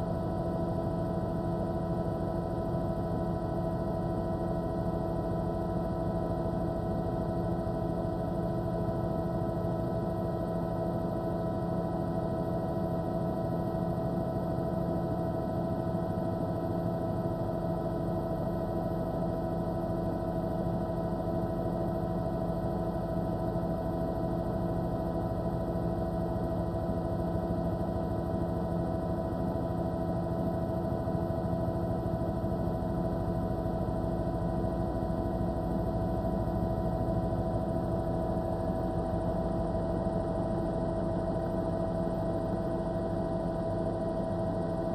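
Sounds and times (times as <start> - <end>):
helicopter engine and rotor drone: 0.0 - 44.9.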